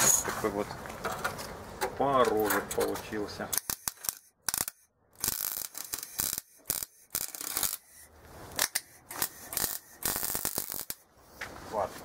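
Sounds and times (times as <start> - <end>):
welding arc crackling: 3.6 - 11.1.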